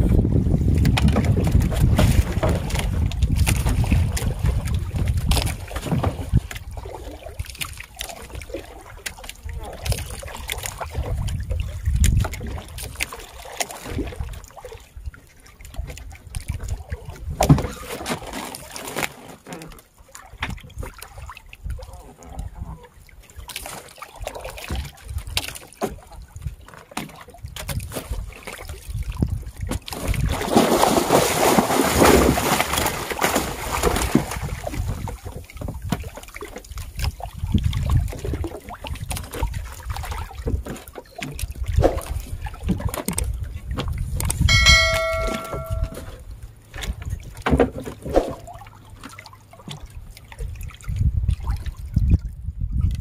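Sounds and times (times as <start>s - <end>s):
wind on microphone: 0.0s - 7.5s, 9.4s - 13.0s, 27.4s - 30.8s, 31.5s - 36.2s, 36.8s - 40.7s, 41.4s - 46.1s, 50.4s - 53.0s
water sloshing around boat: 0.0s - 53.0s
rush of splashing water: 0.7s - 22.3s, 22.9s - 52.4s.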